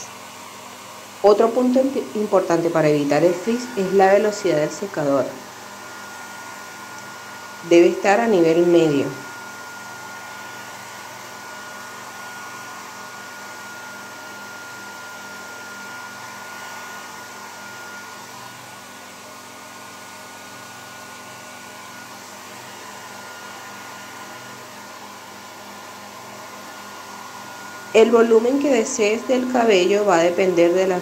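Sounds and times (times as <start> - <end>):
hair dryer running: 0.0 - 31.0.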